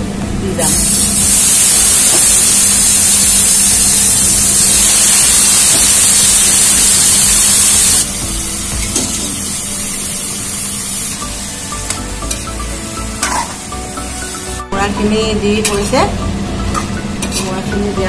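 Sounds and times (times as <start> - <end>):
food sizzling in hot oil: 0.6 - 14.9.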